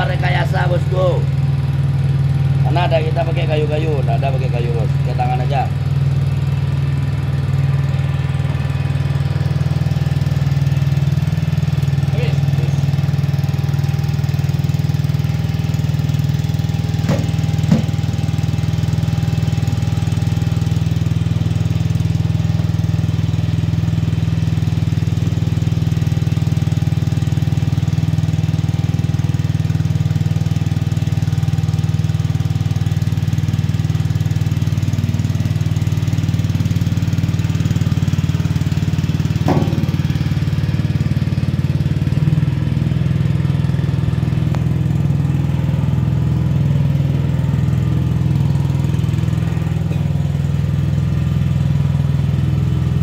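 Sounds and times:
press machine droning: 4.1s - 22.7s, 32.4s - 53.0s.

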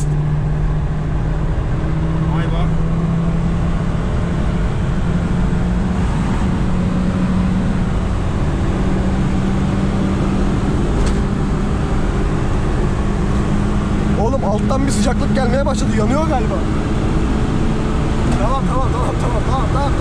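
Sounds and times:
car engine droning: 0.0s - 20.0s
road and tyre rumble: 0.0s - 20.0s.

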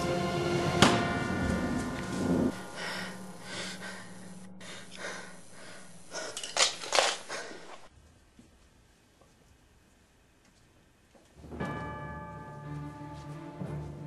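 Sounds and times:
person breathing heavily: 2.2s - 7.9s.

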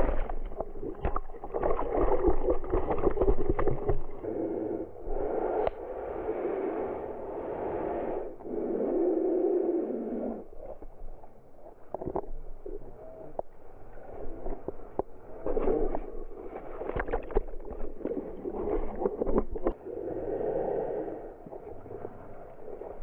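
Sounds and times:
water sloshing around kayak: 0.0s - 4.2s, 14.4s - 19.8s.

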